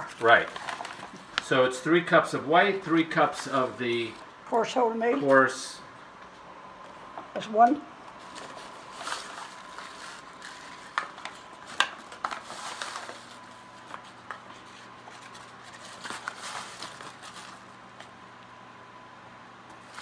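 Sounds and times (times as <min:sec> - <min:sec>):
paper bag crinkling: 0:00.0 - 0:01.6, 0:08.2 - 0:17.8.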